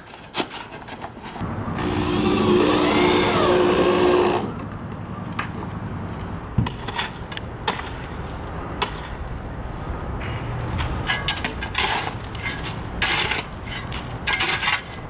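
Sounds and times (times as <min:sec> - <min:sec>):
motor running loudly: 0:01.4 - 0:04.6.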